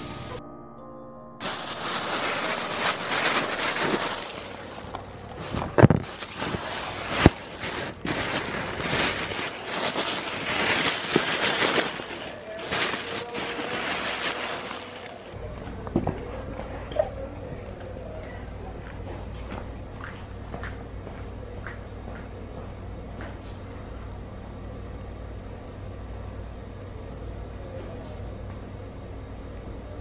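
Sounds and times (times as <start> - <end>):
rustling handling noise on microphone: 1.4 - 15.4.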